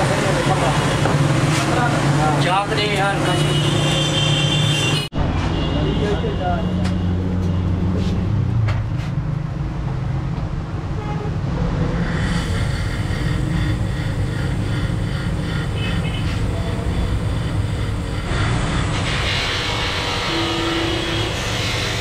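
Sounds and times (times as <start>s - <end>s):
high-pitched noise: 11.6s - 22.0s.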